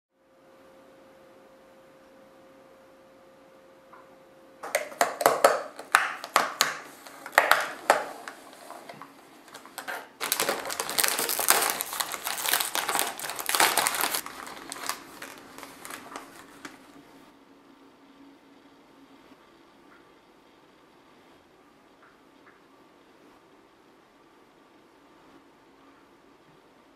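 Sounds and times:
plastic packaging crinkling: 4.6s - 17.2s.

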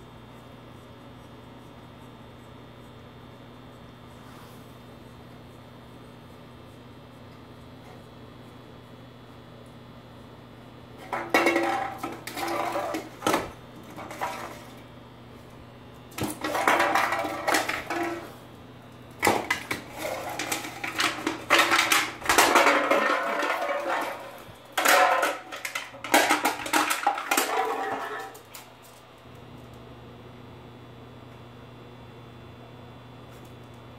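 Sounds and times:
can rolling on wooden floor: 11.0s - 14.8s, 16.2s - 18.4s, 19.2s - 28.7s.

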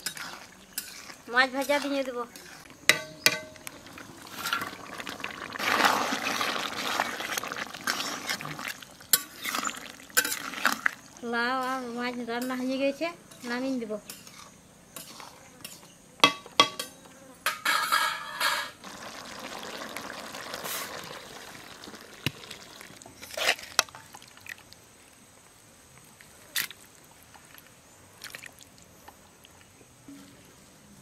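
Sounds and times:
scraping and wet stirring: 0.0s - 16.0s, 21.8s - 24.6s
metal pan and spoon clinking: 2.9s - 3.6s, 9.1s - 10.5s, 12.4s - 18.8s.

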